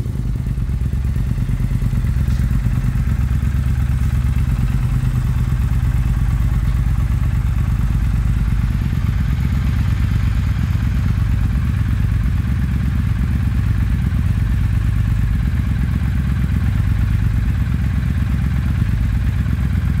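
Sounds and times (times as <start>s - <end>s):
motorcycle engine idling: 0.0s - 20.0s.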